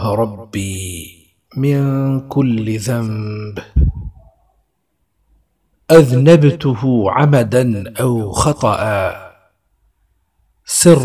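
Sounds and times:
man reciting: 0:00.0 - 0:04.2, 0:05.9 - 0:09.6, 0:10.6 - 0:11.0.

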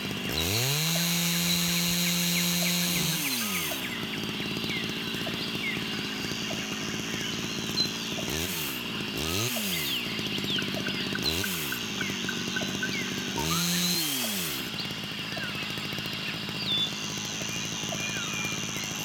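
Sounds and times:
bird chirps: 0:03.8 - 0:08.4, 0:09.7 - 0:13.4, 0:14.7 - 0:19.0.

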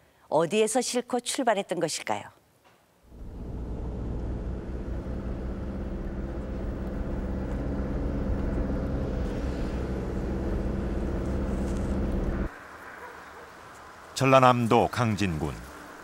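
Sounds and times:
car engine and road drone: 0:03.1 - 0:12.7.

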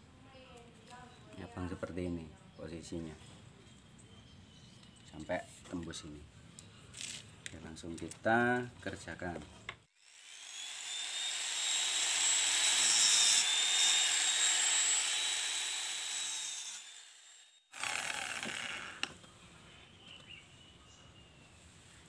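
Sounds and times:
electric drill whining: 0:10.0 - 0:19.2.

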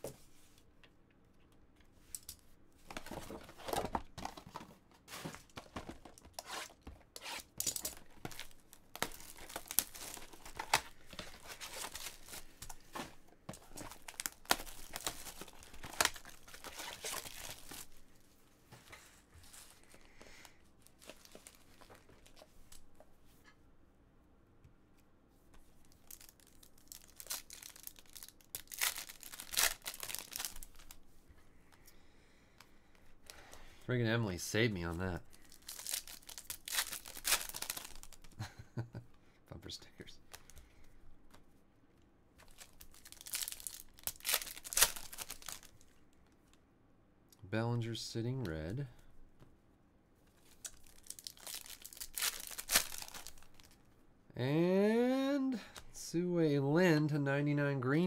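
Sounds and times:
cardboard and foil wrappers tearing: 0:06.4 - 0:12.5, 0:13.7 - 0:17.9, 0:26.0 - 0:31.0, 0:35.3 - 0:38.2, 0:42.4 - 0:45.8, 0:50.6 - 0:53.7.

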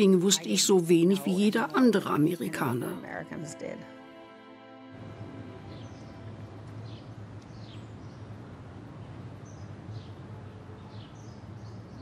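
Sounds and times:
small birds chirping: 0:05.6 - 0:12.0.

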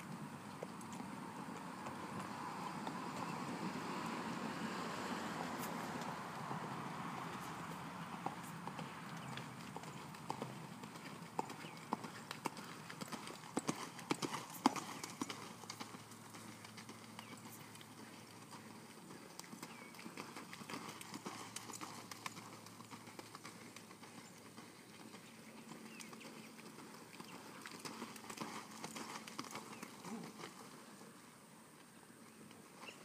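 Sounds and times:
horse hoofbeats on sand: 0:07.2 - 0:30.8.

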